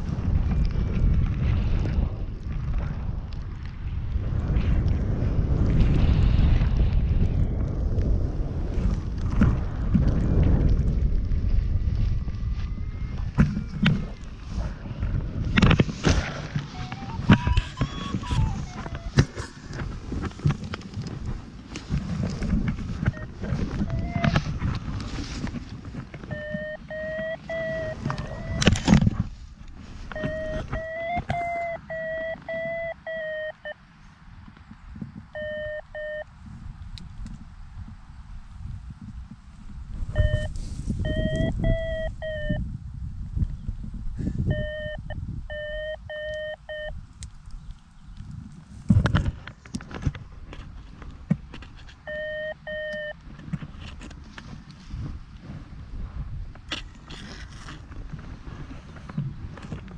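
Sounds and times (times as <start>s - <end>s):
wind buffeting: 0.0s - 46.3s, 46.9s - 59.9s
fabric rubbing on microphone: 15.4s - 26.3s, 40.4s - 41.1s
camera rubbing against clothing: 15.4s - 33.5s, 48.3s - 59.9s
electronic beeps: 16.7s - 19.1s, 23.1s - 24.4s, 26.3s - 28.8s, 30.1s - 33.8s, 35.4s - 36.3s, 40.2s - 42.6s, 44.5s - 47.0s, 52.1s - 53.2s.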